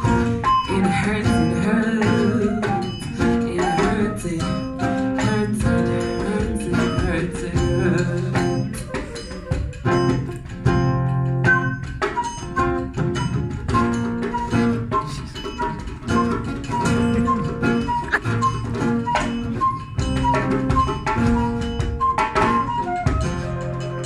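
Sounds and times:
acoustic guitar plucking: 0.0s - 24.0s
person singing: 0.7s - 10.2s, 16.9s - 18.3s.

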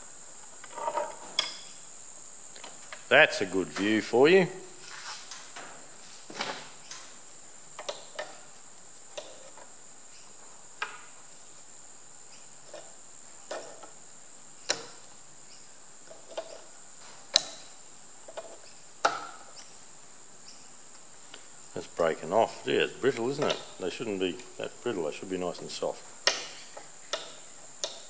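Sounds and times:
faint high-pitched whine: 0.0s - 28.0s.

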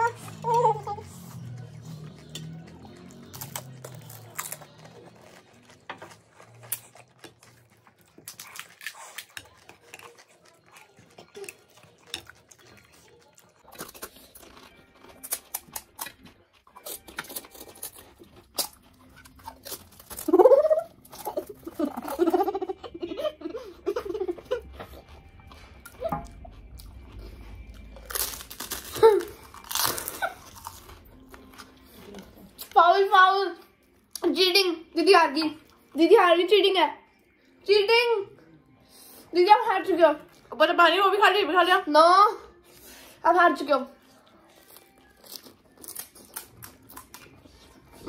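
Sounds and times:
crisp shells cracking and crunching: 2.1s - 22.3s, 27.7s - 31.6s, 44.6s - 47.6s.

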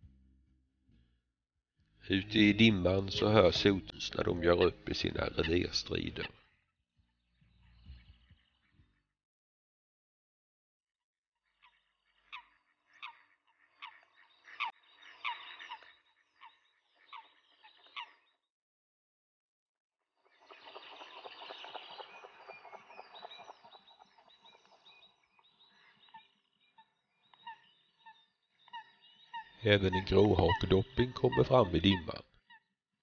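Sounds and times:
coots calling: 2.1s - 6.5s, 11.6s - 18.3s, 20.3s - 32.6s.

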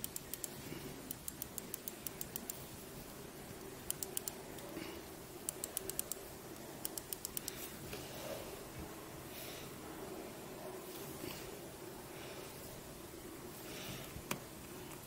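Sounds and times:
joystick clicking: 0.0s - 2.6s, 3.8s - 4.7s, 5.5s - 6.2s, 6.8s - 7.5s
faint steady hum: 0.0s - 15.0s.

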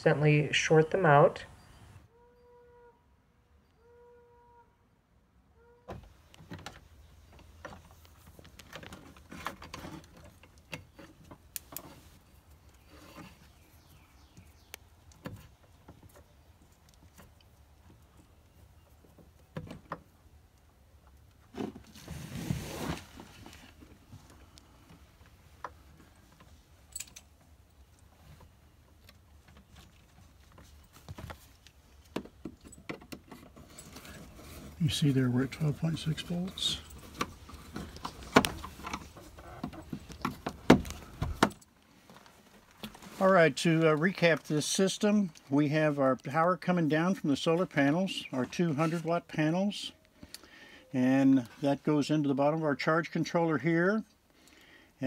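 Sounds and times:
hands rustling wires: 6.1s - 44.5s.

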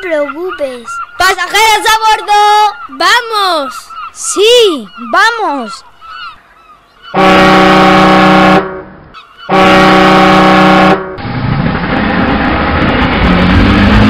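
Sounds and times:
ship's horn blasts: 7.1s - 11.2s
rumbling ship engine: 7.2s - 14.0s.

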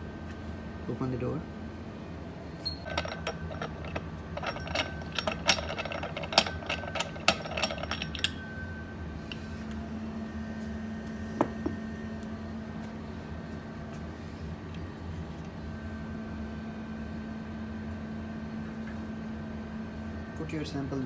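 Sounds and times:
centrifuge humming: 2.5s - 13.5s
metallic clicking and rattling: 2.8s - 8.4s.

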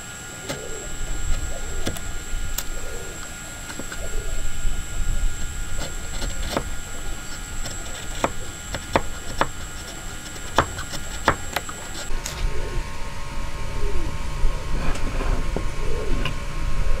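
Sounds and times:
chisel scraping wood: 3.6s - 4.2s, 5.4s - 12.1s
sharp chisel clicks: 7.6s - 12.1s.

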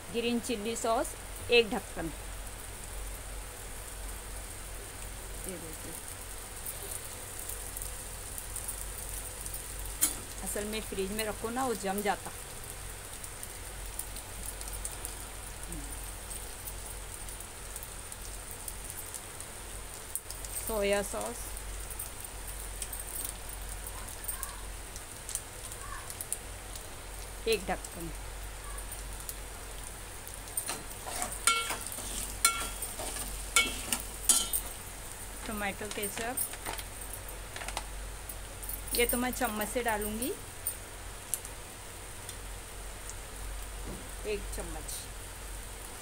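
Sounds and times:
sauce sizzling in a pot: 0.0s - 46.0s
spoon scraping steel pot: 30.7s - 34.7s.

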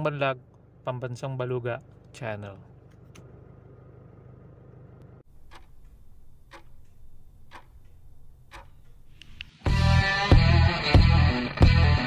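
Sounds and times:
low hum: 0.0s - 10.7s
clock-like ticks: 5.5s - 8.8s.

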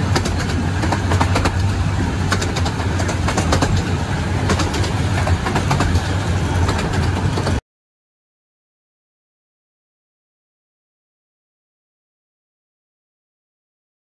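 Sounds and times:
miniature steam train rumbling: 0.0s - 7.6s
sharp clicks: 0.1s - 3.9s.

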